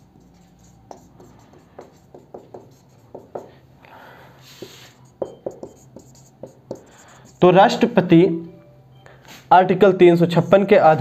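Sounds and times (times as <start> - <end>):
marker writing on whiteboard: 0.0 - 3.6, 4.4 - 8.0.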